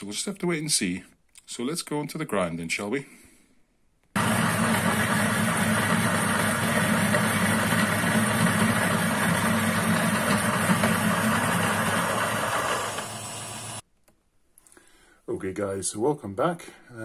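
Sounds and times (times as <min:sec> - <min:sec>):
coffee grinder grinding beans: 0:04.2 - 0:13.8.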